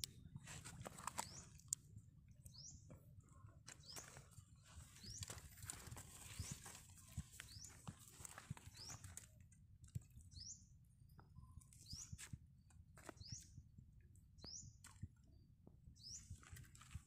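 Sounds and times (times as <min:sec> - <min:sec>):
bird chirping: 0:01.0 - 0:01.8, 0:02.4 - 0:09.4, 0:10.2 - 0:12.3, 0:13.0 - 0:13.6, 0:14.4 - 0:16.5.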